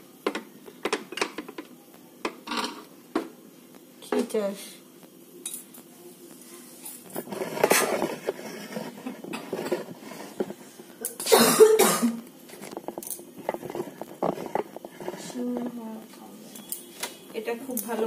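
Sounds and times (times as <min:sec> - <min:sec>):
person coughing: 0:11.2 - 0:12.2.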